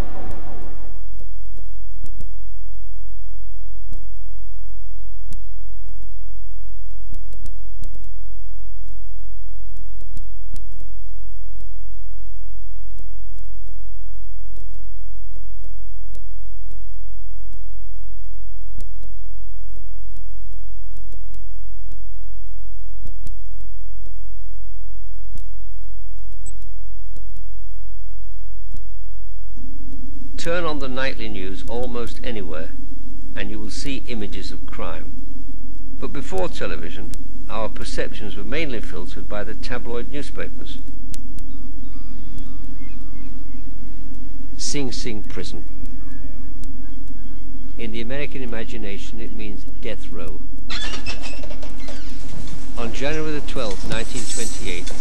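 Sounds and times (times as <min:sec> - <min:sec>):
low electrical hum: 0:00.0 - 0:55.0
faint irregular clicks: 0:46.6 - 0:47.2.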